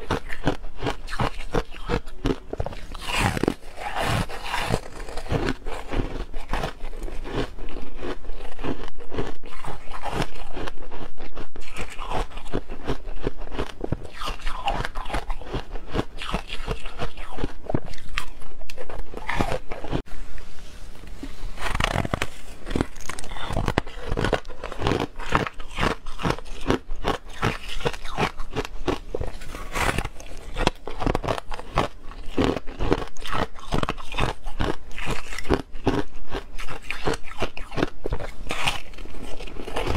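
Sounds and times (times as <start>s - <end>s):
crunchy chewing of frost: 0.0s - 39.9s.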